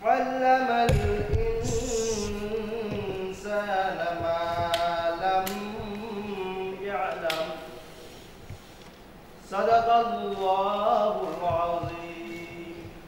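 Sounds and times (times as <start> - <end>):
man chanting into a microphone: 0.0 - 8.1, 9.4 - 13.0
low thumps: 0.8 - 5.9.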